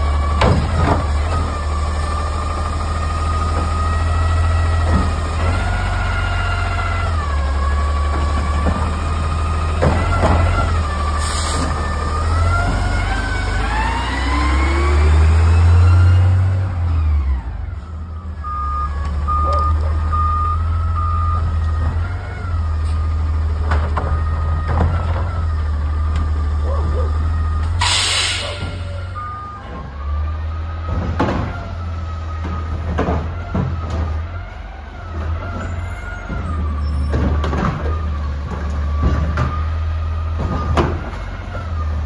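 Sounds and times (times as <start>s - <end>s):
diesel engine revving: 0.0s - 42.0s
air hiss: 27.8s - 29.0s.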